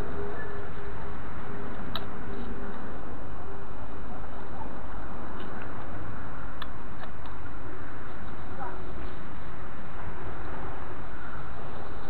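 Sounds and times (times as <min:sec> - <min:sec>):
sweeper rustling over dry grass: 0:00.0 - 0:12.0.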